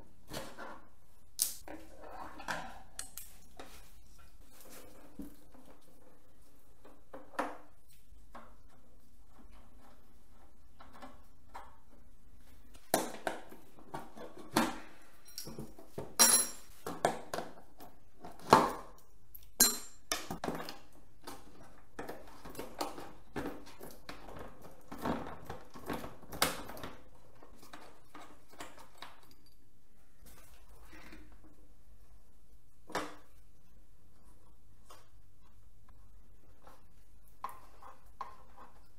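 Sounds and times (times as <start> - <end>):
metal tools clinking: 15.2 - 16.7.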